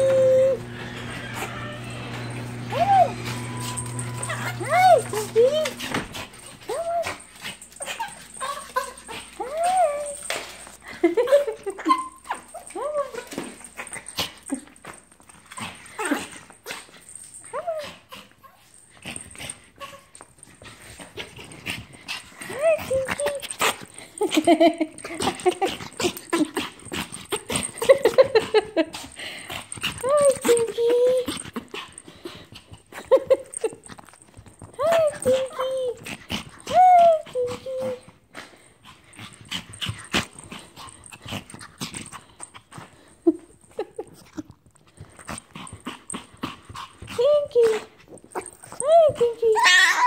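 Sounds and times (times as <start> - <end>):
dog whining and yipping: 0.0 - 10.6, 11.2 - 14.0, 47.6 - 50.0.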